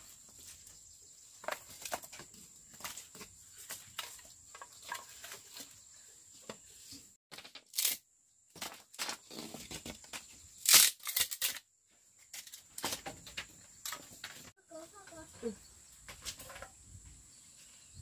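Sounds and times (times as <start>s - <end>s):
bamboo strip tearing: 7.5s - 8.0s, 10.6s - 11.7s
sticks clattering in fire pit: 12.2s - 14.5s, 16.0s - 16.8s.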